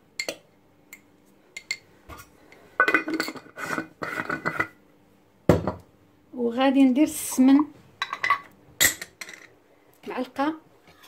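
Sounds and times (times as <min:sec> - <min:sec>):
metal utensils clattering on pot: 0:02.8 - 0:04.8.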